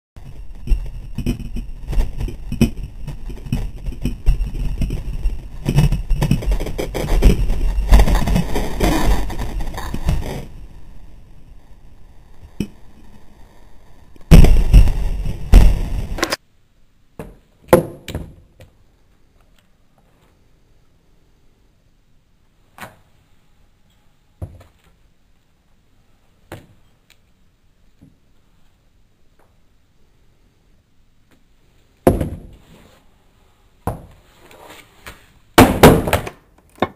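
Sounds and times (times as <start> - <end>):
skateboard wheels clacking: 0.2 - 10.5.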